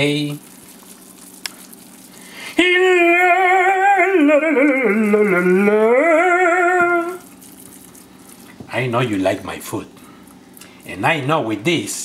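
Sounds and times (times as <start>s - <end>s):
person singing sustained note: 2.6s - 7.2s.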